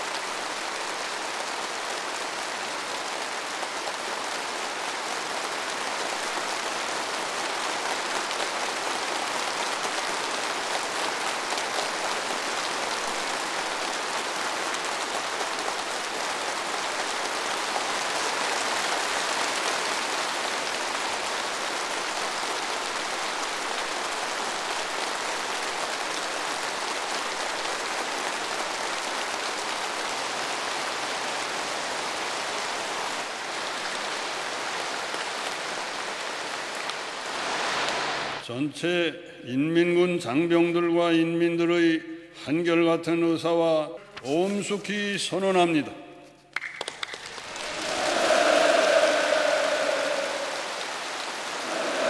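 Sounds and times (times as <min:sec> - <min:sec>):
crowd applauding: 0:46.6 - 0:52.0.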